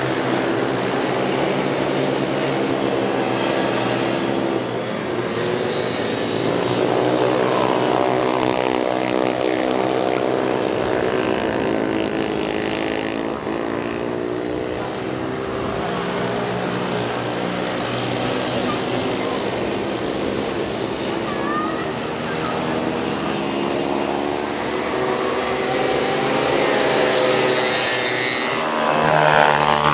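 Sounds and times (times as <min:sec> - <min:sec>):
quad engines racing: 0:00.0 - 0:29.9.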